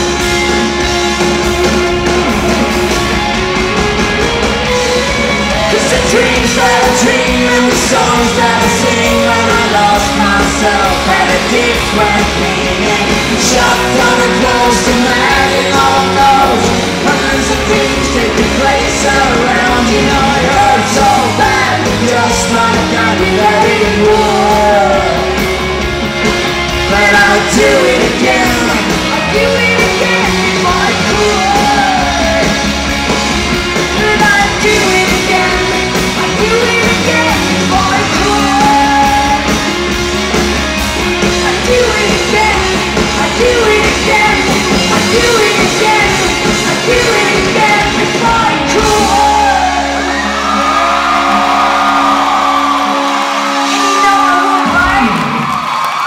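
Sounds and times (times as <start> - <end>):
live rock band playing: 0.0 - 56.0
woman singing: 26.9 - 32.5, 33.9 - 39.5, 41.4 - 49.8.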